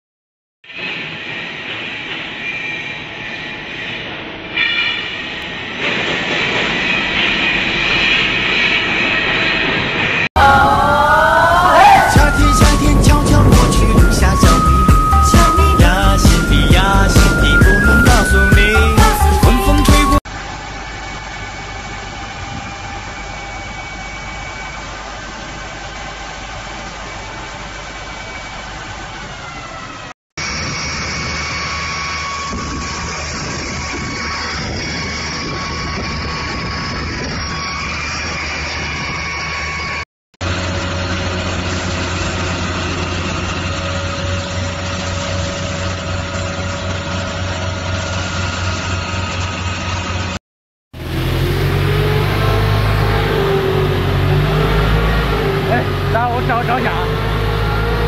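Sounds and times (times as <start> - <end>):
metallic squeal: 0.8 - 5.7, 11.7 - 25.2, 30.4 - 40.0
truck engine hum: 10.4 - 50.4, 51.0 - 58.0
hissing grinding machinery: 30.4 - 50.0, 51.0 - 58.0.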